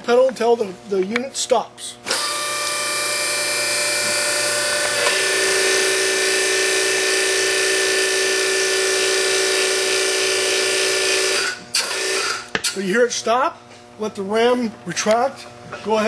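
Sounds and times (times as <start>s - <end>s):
hydraulic pump running: 2.0s - 12.9s.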